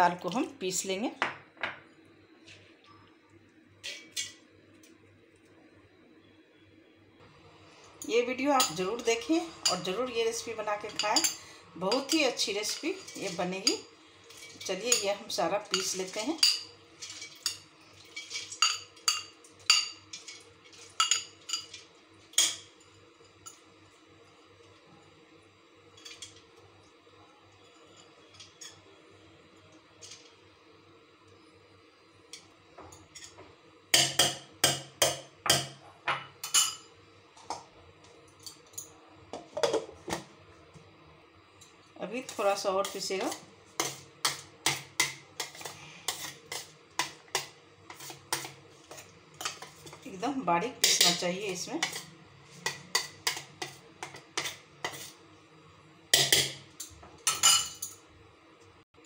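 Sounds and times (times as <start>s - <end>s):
kitchen utensils tapping together: 50.8s - 51.2s, 56.2s - 58.0s.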